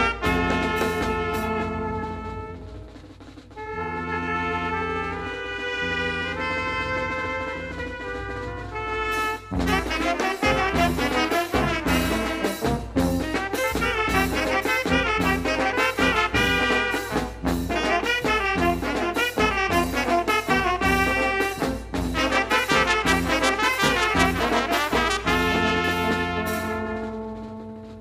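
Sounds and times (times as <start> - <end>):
brass band playing: 0.0 - 28.0
snare and bass drum beat: 0.0 - 28.0.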